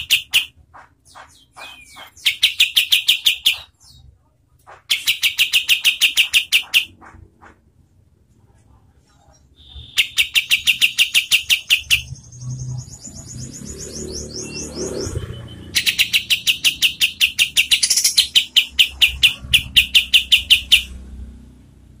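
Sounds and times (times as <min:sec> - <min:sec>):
bulbul singing rapid rattle: 0:15.8 - 0:21.0.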